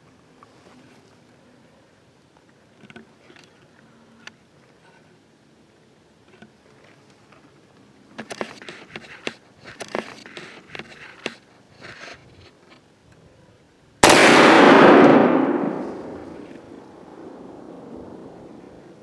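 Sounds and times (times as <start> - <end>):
light clicks and rustles: 2.2 - 5.2, 6.2 - 13.2
rifle gunshot boom: 14.0 - 18.6.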